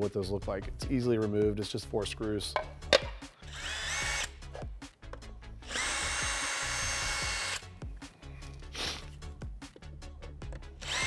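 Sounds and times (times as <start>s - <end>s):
cordless drill whining: 3.4s - 4.4s, 5.6s - 7.6s, 10.8s - 11.0s.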